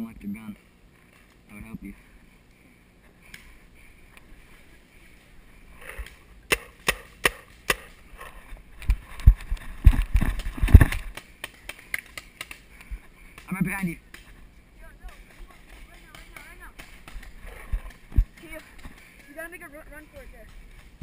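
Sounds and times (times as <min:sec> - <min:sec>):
paintball marker shots: 0:06.0 - 0:08.0
running footsteps on forest floor: 0:08.3 - 0:21.0.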